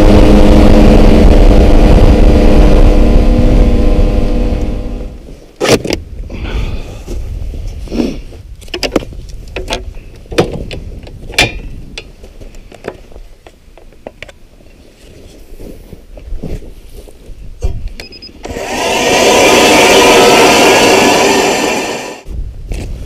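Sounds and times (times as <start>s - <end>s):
snowmobile engine running: 0.0s - 5.2s, 18.5s - 22.2s.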